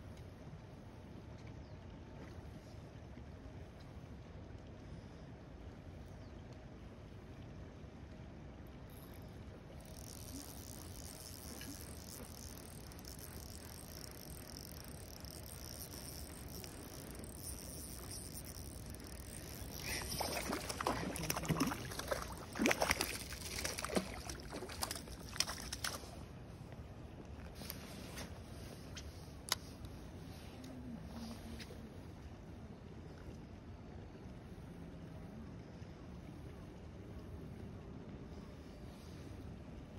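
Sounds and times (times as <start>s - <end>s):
low steady background noise: 0.0s - 39.9s
fish splashing at water surface: 10.0s - 26.0s.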